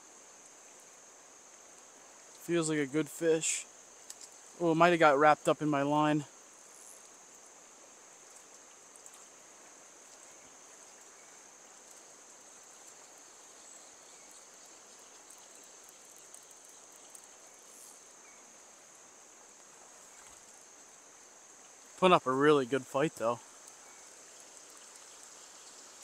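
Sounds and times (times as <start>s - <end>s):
insect drone: 0.0s - 26.0s.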